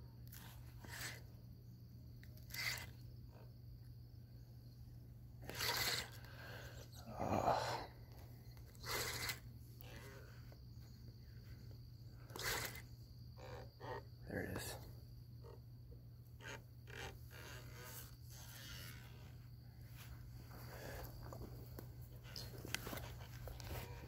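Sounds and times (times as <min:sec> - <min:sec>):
steady low hum: 0:00.0 - 0:24.0
rod and sleeve rubbing and scraping: 0:00.3 - 0:01.2, 0:05.4 - 0:06.2, 0:16.4 - 0:21.5.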